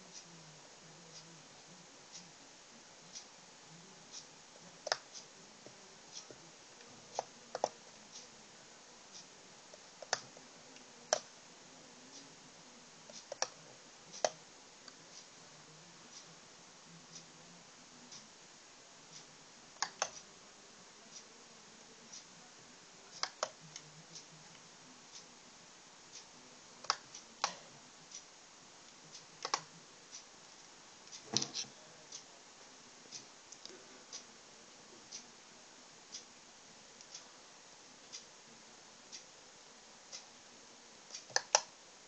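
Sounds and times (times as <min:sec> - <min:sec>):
faint ticking: 0:00.0 - 0:16.4, 0:18.0 - 0:20.4, 0:21.1 - 0:35.4.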